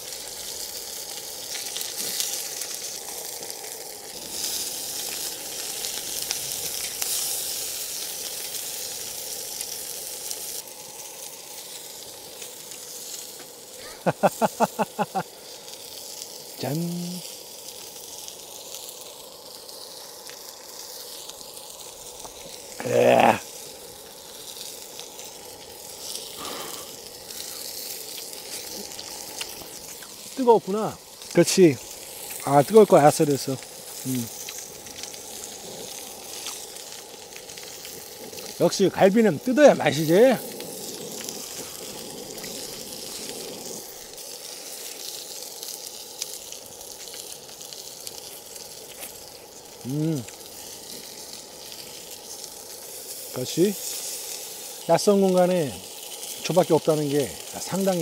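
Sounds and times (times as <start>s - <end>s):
meat sizzling: 0.0s - 58.0s
man's brief voiced sound: 22.8s - 23.4s.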